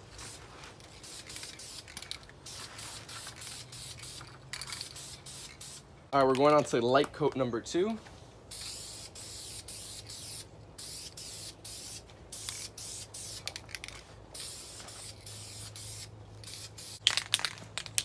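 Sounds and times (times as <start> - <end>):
spray can hissing: 0.2 - 5.9, 8.5 - 17.0.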